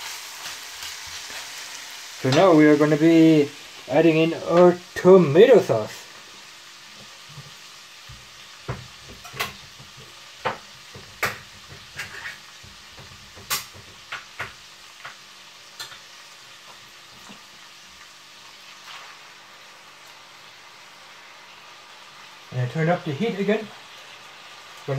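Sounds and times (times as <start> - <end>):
meat sizzling in a pan: 0.0 - 24.9
sharp pops and crackles: 8.1 - 16.1.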